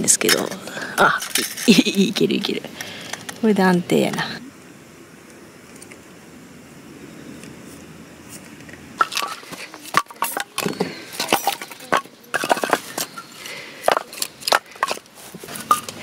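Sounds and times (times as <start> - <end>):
firewood pieces knocking together: 9.0 - 16.0.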